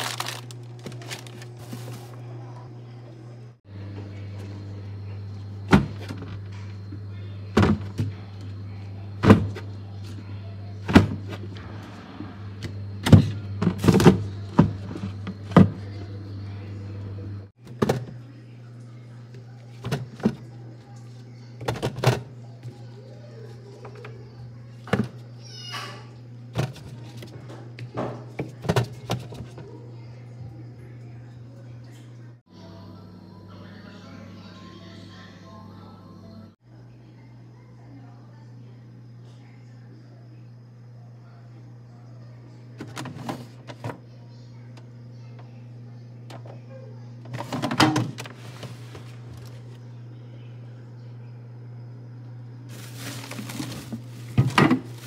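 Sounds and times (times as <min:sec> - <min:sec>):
steady low hum: 0:00.0 - 0:25.4, 0:26.1 - 0:55.0
produce thudding into drawer: 0:52.7 - 0:55.0.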